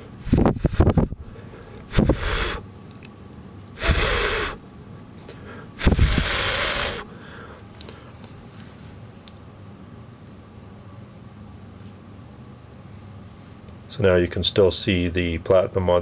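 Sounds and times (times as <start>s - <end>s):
puff hitting microphone: 0.2s - 1.2s, 1.9s - 2.6s, 3.8s - 4.6s, 5.8s - 7.0s
person blowing breaths: 0.2s - 2.6s, 3.8s - 4.6s, 5.3s - 8.1s.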